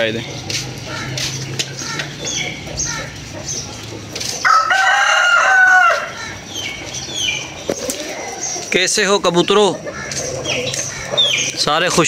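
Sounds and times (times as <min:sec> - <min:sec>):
rooster crowing: 0:04.4 - 0:06.3.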